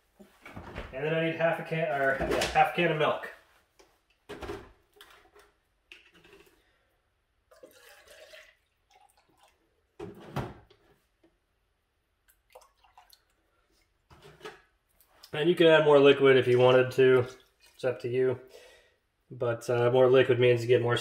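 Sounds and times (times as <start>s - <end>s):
milk pouring into a can: 7.4s - 10.0s, 12.3s - 14.0s.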